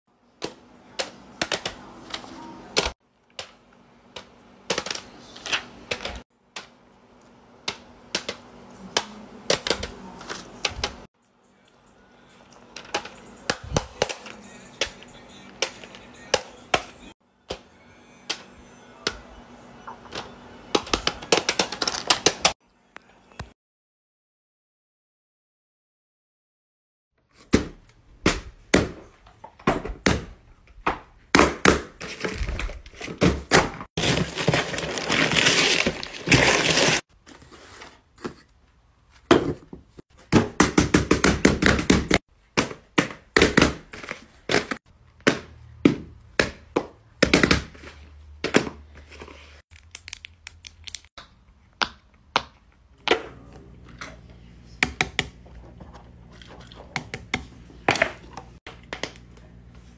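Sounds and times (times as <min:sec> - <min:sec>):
paper rustling and tearing: 0:34.0 - 0:38.0.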